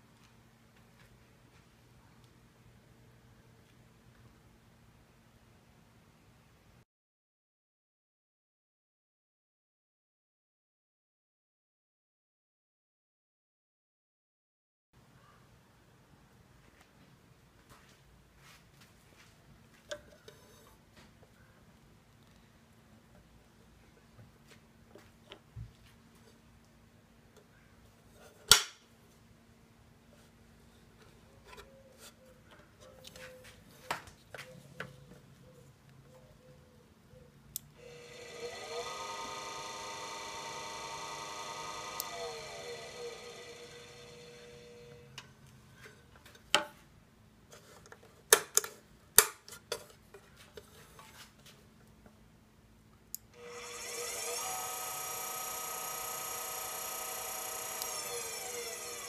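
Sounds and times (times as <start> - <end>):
motor faint hum: 37.8 - 45.2, 53.4 - 59.0.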